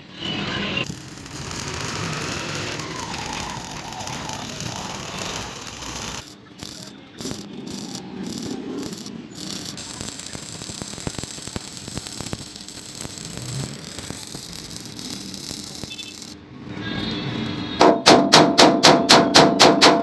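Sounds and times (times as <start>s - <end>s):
welding arc crackling: 0.8s - 16.4s.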